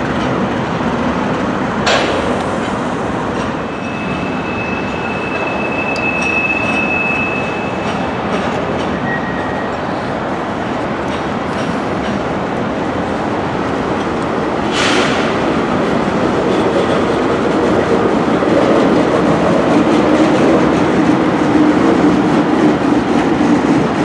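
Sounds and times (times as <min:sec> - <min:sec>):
train wheels rumbling on rail: 0:00.0 - 0:24.0
high wheel squeal: 0:03.6 - 0:08.2, 0:08.9 - 0:09.8.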